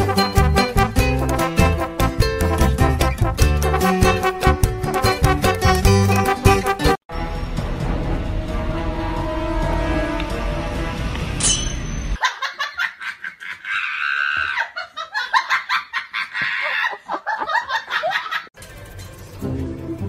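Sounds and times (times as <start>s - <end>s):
background music: 0.0s - 11.7s, 19.1s - 20.0s
high-pitched laughter: 12.2s - 18.5s.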